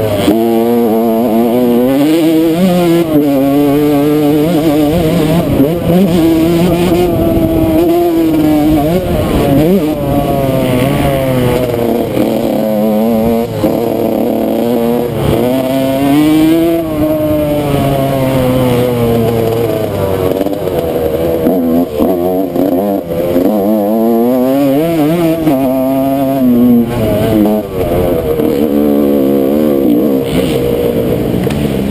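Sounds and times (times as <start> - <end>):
dirt bike engine revving: 0.0 - 31.9.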